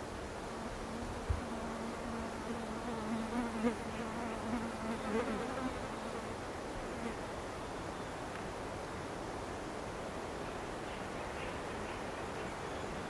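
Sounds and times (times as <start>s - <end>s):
flying insect buzzing: 0.5s - 6.3s.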